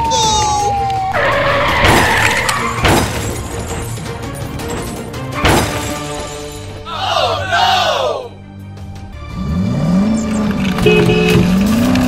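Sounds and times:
background music: 0.0s - 12.0s
tyre screech: 1.1s - 3.3s
car crashes: 1.2s - 6.4s.

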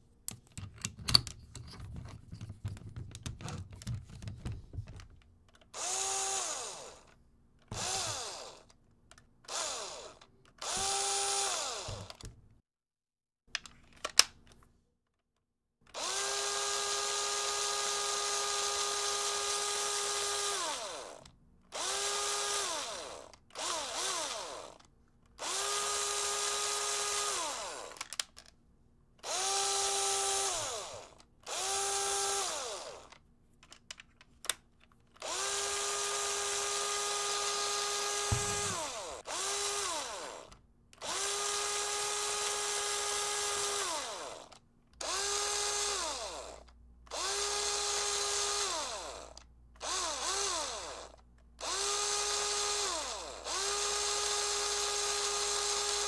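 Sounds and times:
cordless drill motor whining: 5.8s - 8.7s, 9.5s - 12.3s, 15.9s - 28.2s, 29.2s - 33.2s, 35.2s - 56.0s.

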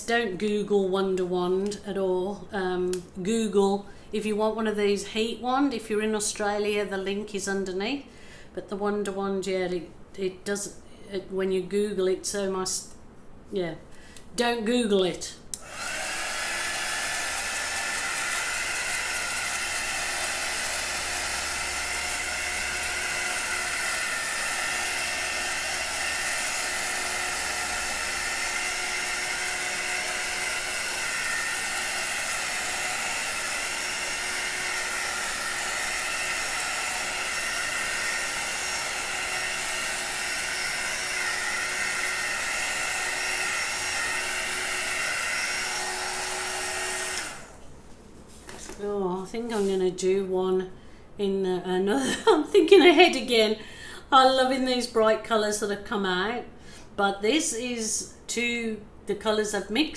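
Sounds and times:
heat wand fan blowing: 15.5s - 50.2s.

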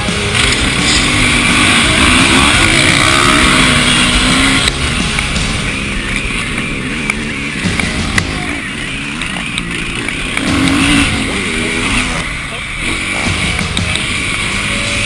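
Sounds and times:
dirt bike engine revving: 0.0s - 15.0s
steady rushing noise: 0.0s - 15.0s.

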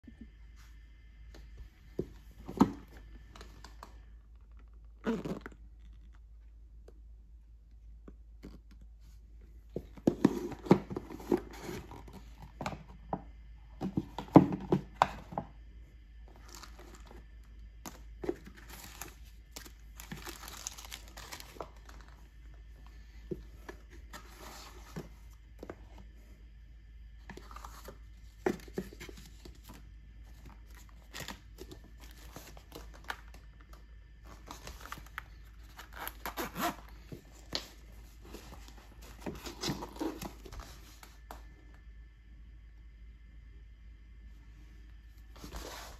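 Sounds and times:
paper and plastic rustling: 17.8s - 25.8s, 34.2s - 41.3s.

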